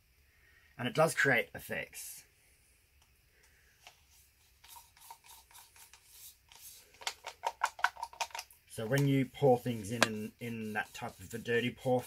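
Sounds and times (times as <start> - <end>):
small clicks and scrapes: 3.0 - 11.4
plastic cup crinkling: 4.6 - 10.2.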